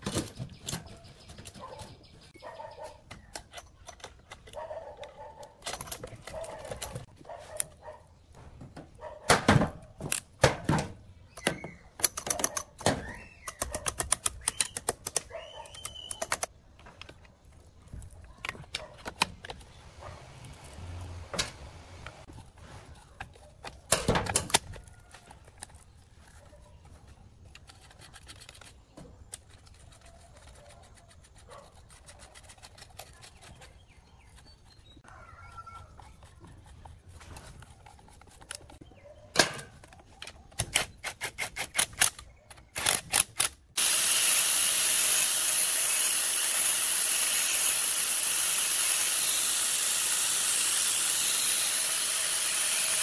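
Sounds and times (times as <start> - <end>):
hand tools clicking on metal: 11.4 - 17.2
angle grinder sanding: 43.8 - 53.0.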